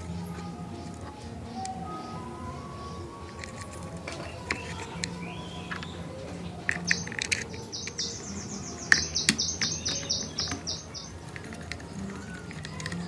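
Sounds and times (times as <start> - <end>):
bird chirping: 0.0 - 13.0
plastic parts clicking: 3.3 - 13.0.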